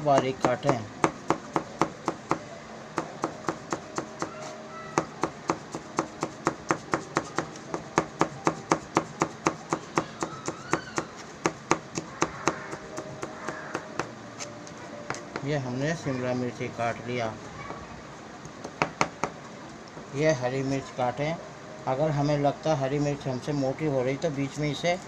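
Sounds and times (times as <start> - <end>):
knife chopping on cutting board: 5.0 - 14.1.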